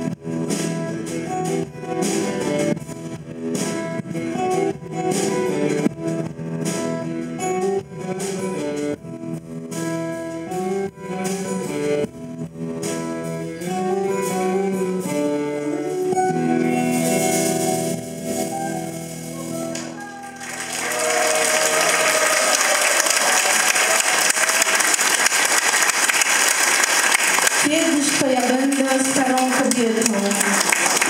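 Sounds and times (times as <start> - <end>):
strummed and picked guitars: 0.0 - 24.0
bass guitar: 0.0 - 25.2
drums: 0.0 - 31.0.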